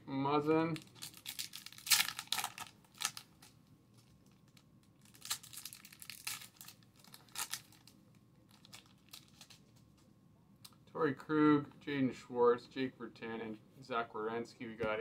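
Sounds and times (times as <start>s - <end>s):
foil wrapper tearing and crinkling: 0.8s - 3.3s, 5.0s - 9.6s.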